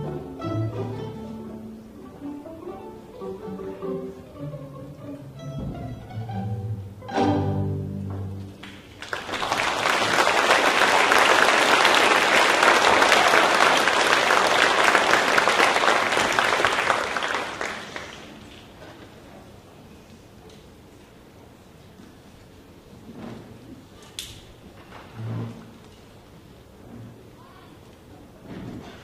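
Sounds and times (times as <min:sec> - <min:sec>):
string orchestra playing: 0:00.0 - 0:08.6
audience applause: 0:08.5 - 0:18.8.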